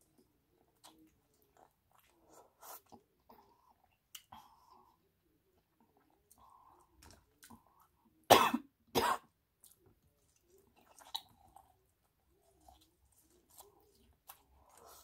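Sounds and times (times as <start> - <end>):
chewing and mouth sounds: 0.0 - 4.8, 5.6 - 8.0, 9.6 - 15.0
woman coughing: 8.3 - 9.2.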